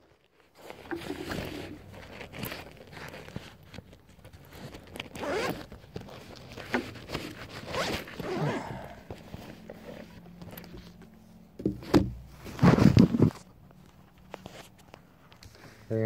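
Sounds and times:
fabric rustling: 0:00.0 - 0:11.6, 0:12.2 - 0:15.9
zipper pulled open: 0:00.6 - 0:11.0, 0:12.4 - 0:13.4.

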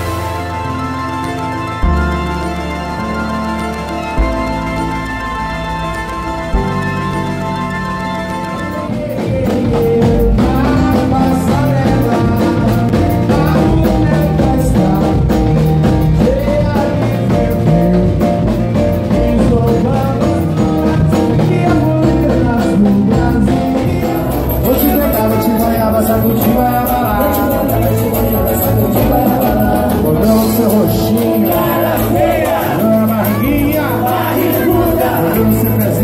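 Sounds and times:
live band playing dance music: 0:00.0 - 0:36.0
person singing: 0:07.9 - 0:36.0.

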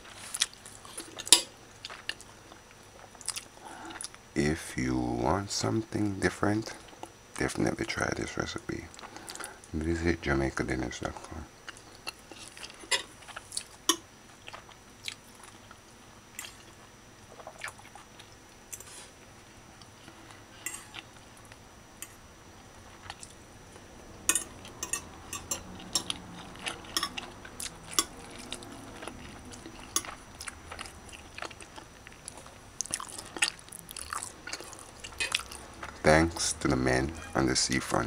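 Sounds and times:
chewing: 0:00.0 - 0:04.2, 0:11.7 - 0:19.0, 0:24.3 - 0:36.5.

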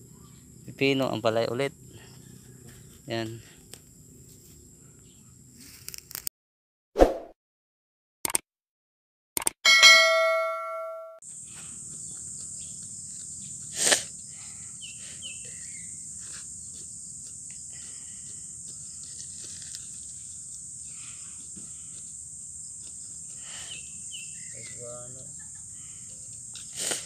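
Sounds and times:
crickets and insects chorus: 0:00.0 - 0:05.7, 0:11.2 - 0:27.0.

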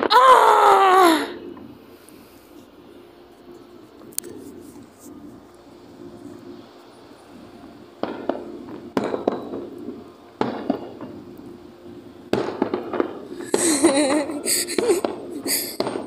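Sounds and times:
fireworks bursting: 0:03.9 - 0:16.0
fireworks hiss: 0:06.0 - 0:16.0.

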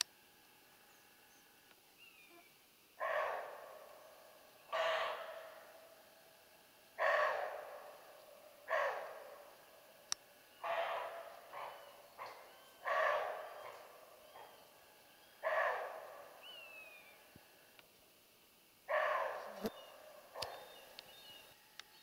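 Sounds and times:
deer barking: 0:03.0 - 0:06.0, 0:07.0 - 0:10.0, 0:10.6 - 0:14.7, 0:15.4 - 0:17.1, 0:18.9 - 0:20.8.

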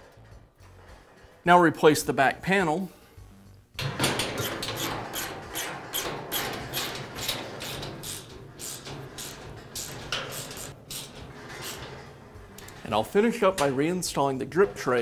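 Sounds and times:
metallic clicks and knocks: 0:03.8 - 0:15.0.

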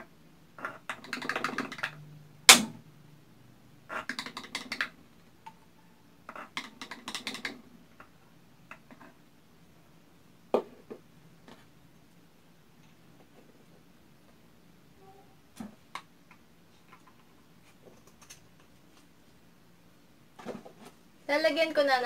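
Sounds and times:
stick clicking against bottles: 0:00.6 - 0:02.6, 0:06.3 - 0:07.6.

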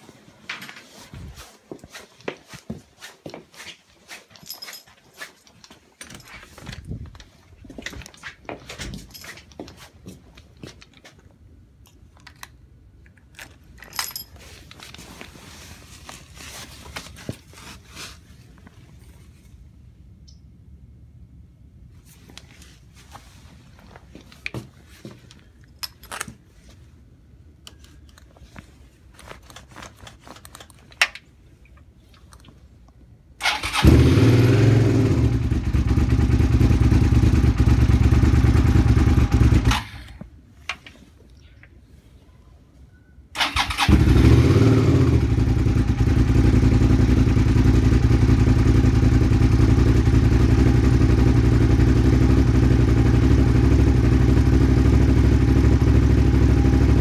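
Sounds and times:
motorcycle engine running: 0:33.8 - 0:39.7, 0:43.8 - 0:57.0.

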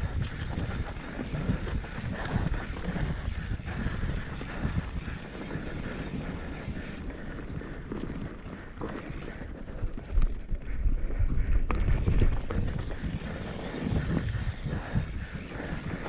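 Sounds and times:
bike tyres rumbling on dirt trail: 0:00.0 - 0:16.0
wind on microphone: 0:00.0 - 0:16.0.

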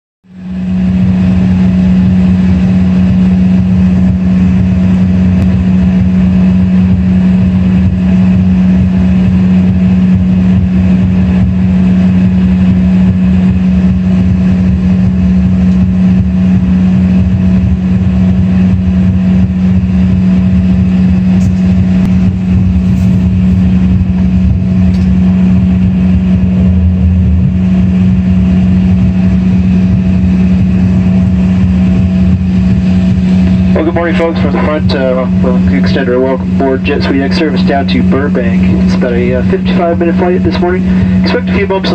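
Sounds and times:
jet cabin engine drone: 0:00.2 - 0:41.9.

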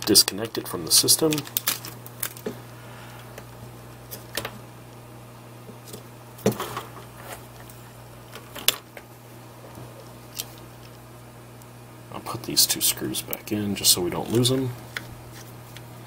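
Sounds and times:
cables clicking from connectors: 0:00.0 - 0:02.6
steady low hum: 0:00.0 - 0:16.0.

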